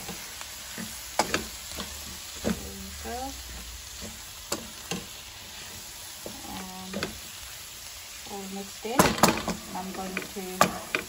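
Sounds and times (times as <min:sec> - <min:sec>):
vegetables sizzling in pan: 0:00.0 - 0:11.0.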